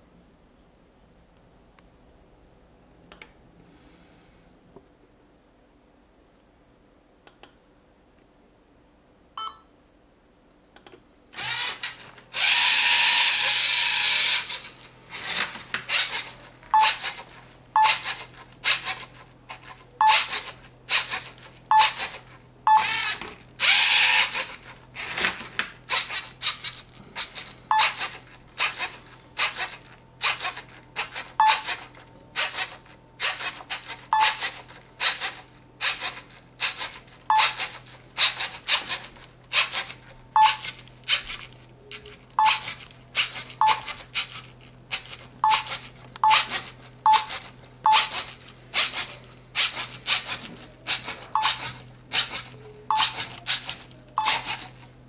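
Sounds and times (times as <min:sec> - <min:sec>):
servo motors whirring: 0:11.4 - 0:17.2, 0:22.8 - 0:24.6.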